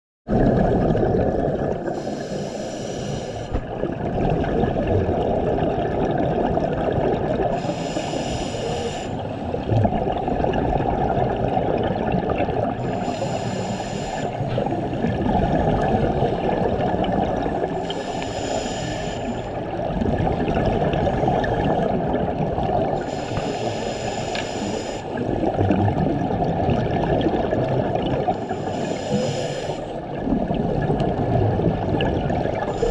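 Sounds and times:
bubbling water rush: 0:00.3 - 0:08.2, 0:08.8 - 0:24.2, 0:24.8 - 0:32.9
regulator breathing hiss: 0:02.0 - 0:03.6, 0:07.5 - 0:09.3, 0:12.8 - 0:14.4, 0:17.8 - 0:19.5, 0:23.0 - 0:25.2, 0:28.4 - 0:29.9, 0:32.7 - 0:32.9.

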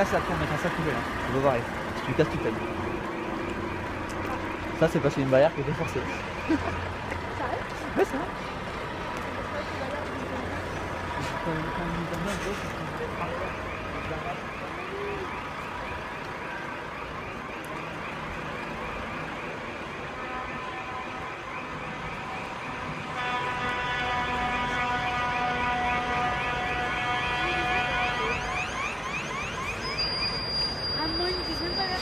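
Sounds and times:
siren rising wail: 0:00.0 - 0:07.6, 0:11.4 - 0:32.0
lorry engines rumbling: 0:00.0 - 0:32.0
steady horn-like tone: 0:23.1 - 0:28.6.

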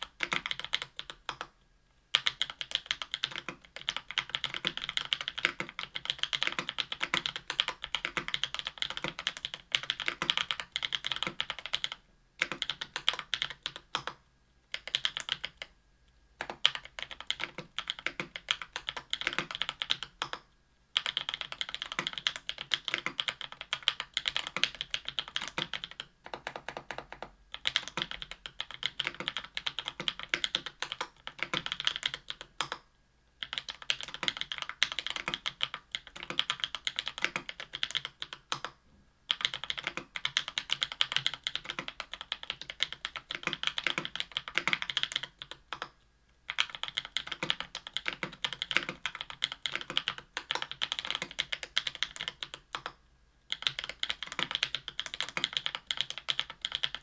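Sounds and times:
mechanical keyboard typing: 0:00.0 - 0:01.5, 0:02.1 - 0:15.7, 0:16.4 - 0:32.8, 0:33.4 - 0:57.0.

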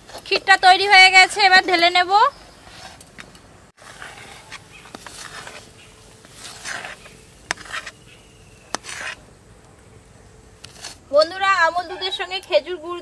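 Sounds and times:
metal spoon scraping wok: 0:03.8 - 0:09.4.

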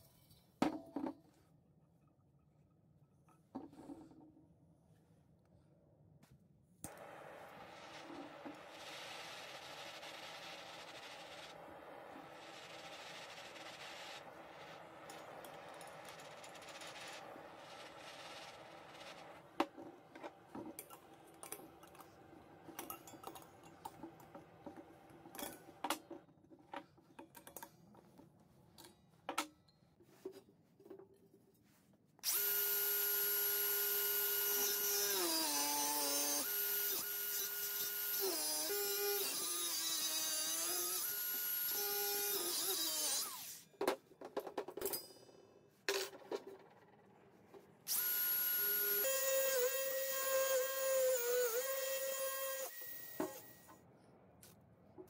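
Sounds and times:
angle grinder on steel: 0:07.6 - 0:19.6, 0:32.2 - 0:43.6, 0:47.9 - 0:53.7.

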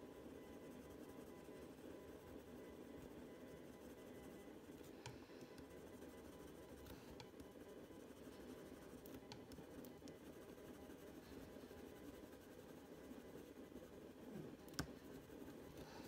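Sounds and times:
low steady room hum: 0:00.0 - 0:16.0
pencil scratching on paper: 0:05.6 - 0:16.0.

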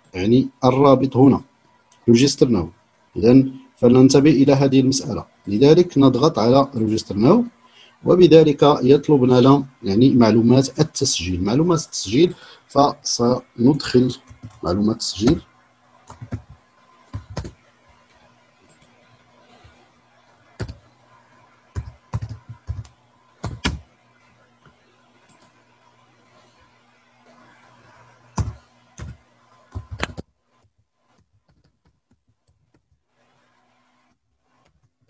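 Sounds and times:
low electrical hum: 0:00.0 - 0:35.0
keyboard keys clicking: 0:16.1 - 0:17.6, 0:28.4 - 0:30.2.

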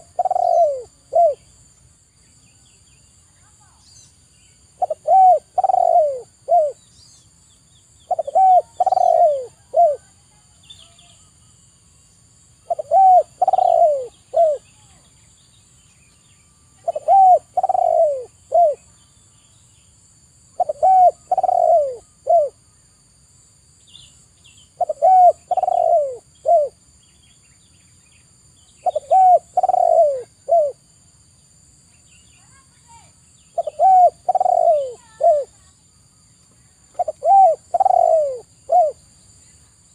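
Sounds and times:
dove cooing: 0:00.0 - 0:01.5, 0:04.8 - 0:06.8, 0:08.1 - 0:10.2, 0:12.6 - 0:14.7, 0:16.8 - 0:18.9, 0:20.6 - 0:22.6, 0:24.8 - 0:26.8, 0:28.8 - 0:30.8, 0:33.5 - 0:35.6, 0:36.9 - 0:39.0.

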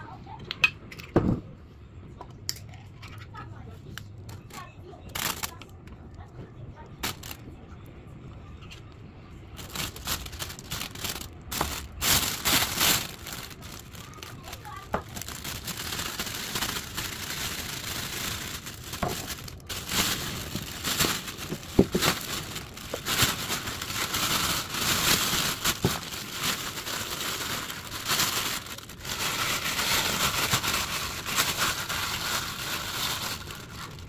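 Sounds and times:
plastic bag crinkling: 0:04.4 - 0:05.9, 0:07.0 - 0:07.4, 0:09.5 - 0:34.0.

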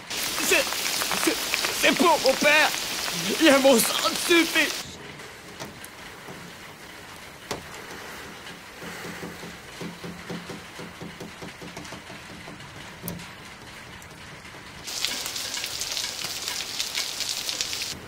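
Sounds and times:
light rain falling: 0:00.0 - 0:18.0.

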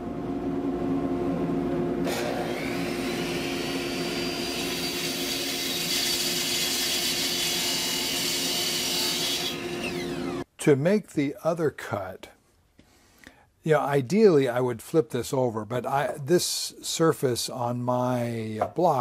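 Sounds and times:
miter saw cutting wood: 0:02.0 - 0:10.5.

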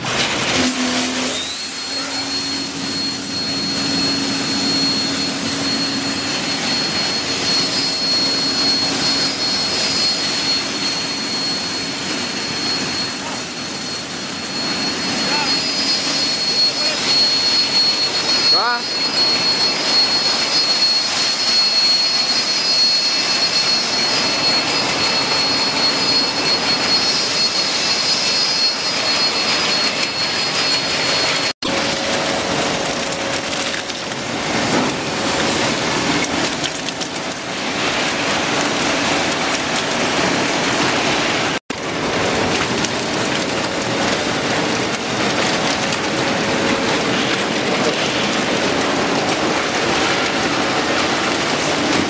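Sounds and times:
machine noise: 0:00.0 - 0:52.0
thin high whine: 0:00.2 - 0:41.6.

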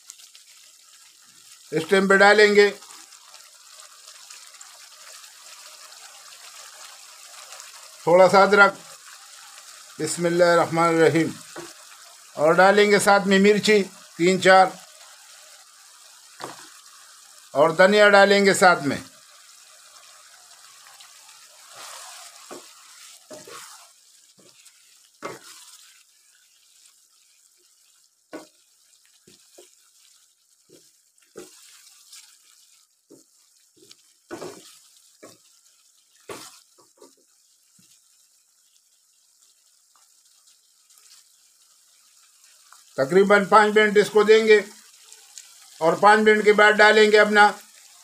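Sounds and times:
simmering pot hiss: 0:00.0 - 0:48.0
wooden spatula scraping a wok: 0:20.0 - 0:38.0.

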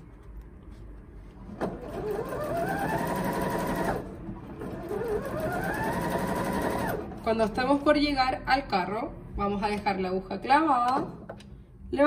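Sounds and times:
sewing machine motor whine: 0:01.8 - 0:07.0.

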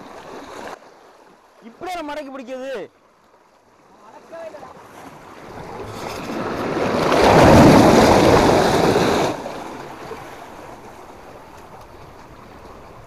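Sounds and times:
sea wave surging over rocks: 0:04.0 - 0:13.0.

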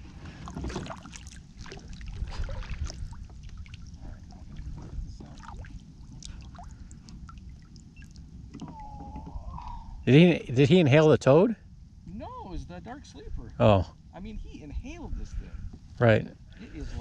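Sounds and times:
water lapping against kayak hull: 0:00.0 - 0:10.0
steady low rumble: 0:00.0 - 0:17.0.

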